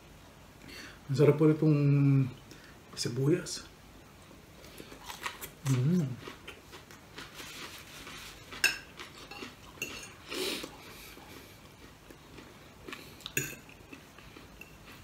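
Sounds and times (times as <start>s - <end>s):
fork clinking on a plate: 8.6s - 10.2s, 13.3s - 13.8s.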